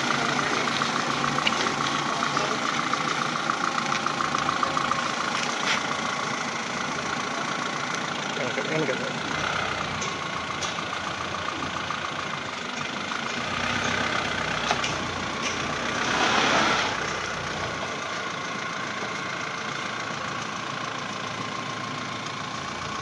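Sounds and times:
vehicle engine idling: 0:00.0 - 0:23.0.

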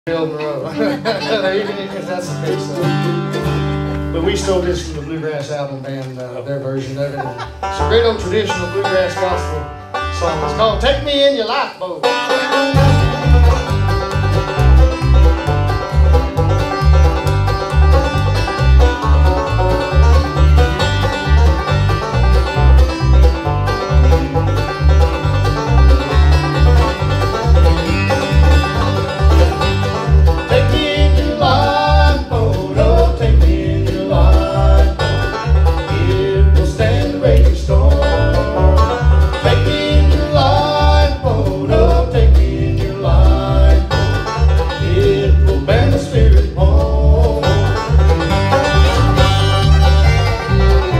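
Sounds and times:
bluegrass band playing: 0:00.0 - 0:50.9
fiddle: 0:00.1 - 0:06.0, 0:07.0 - 0:50.9
banjo: 0:00.1 - 0:50.9
person singing: 0:30.4 - 0:44.1, 0:44.7 - 0:47.8.

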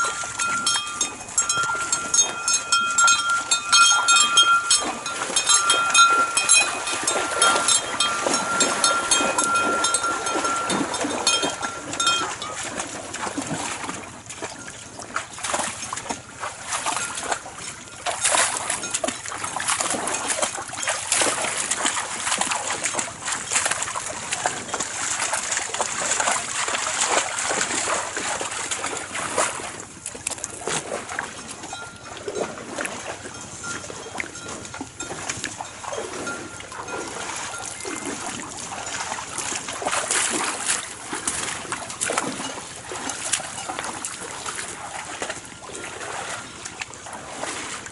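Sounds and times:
high ringing notes: 0:00.0 - 0:12.8
cattle splashing in water: 0:00.0 - 0:47.9.

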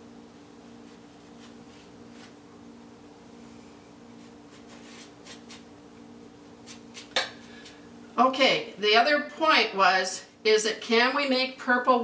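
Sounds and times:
steady low hum: 0:00.0 - 0:11.8
paintbrush stroking on canvas: 0:04.1 - 0:05.7.

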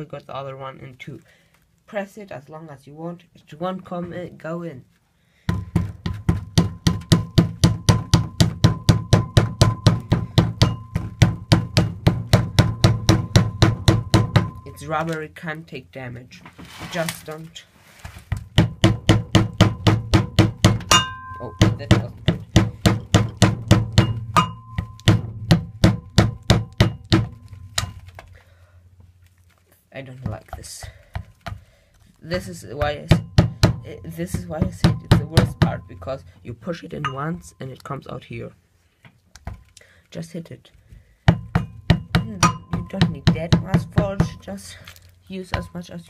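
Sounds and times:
hammer tapping dull knocks: 0:05.5 - 0:15.1, 0:18.4 - 0:28.0, 0:32.4 - 0:36.4, 0:41.3 - 0:44.5.

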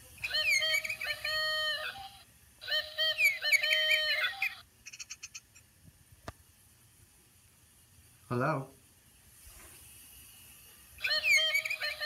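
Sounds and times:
toy bird chirping: 0:00.1 - 0:05.6, 0:11.0 - 0:12.0.

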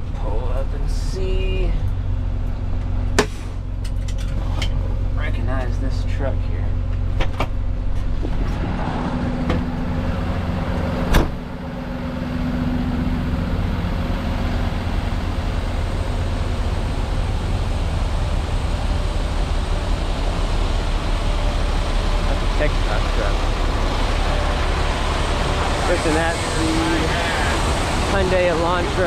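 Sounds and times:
truck engine humming: 0:00.0 - 0:29.0
sharp knock: 0:03.2 - 0:03.6.

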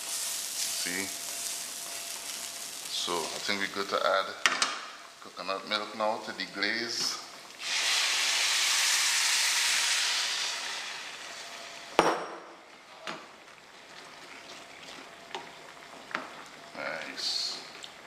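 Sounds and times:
liquid sizzling in a hot pan: 0:00.0 - 0:12.0.

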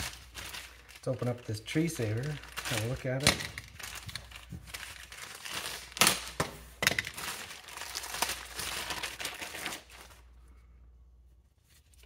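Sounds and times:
nylon strap rustling: 0:00.0 - 0:10.3
plastic bag crinkling: 0:00.0 - 0:10.4.

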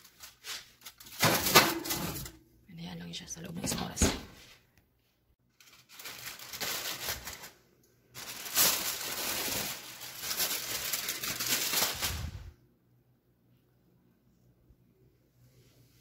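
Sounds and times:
aluminium foil crinkling: 0:00.0 - 0:02.3, 0:05.5 - 0:12.5.

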